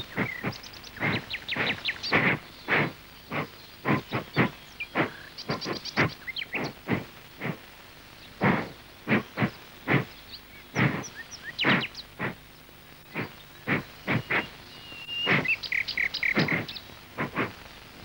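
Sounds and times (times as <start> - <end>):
sharp smacks: 0.0 - 7.6, 8.4 - 10.1, 10.8 - 12.4, 13.1 - 14.5, 15.2 - 15.6, 16.3 - 17.6
birds chirping: 0.0 - 18.0.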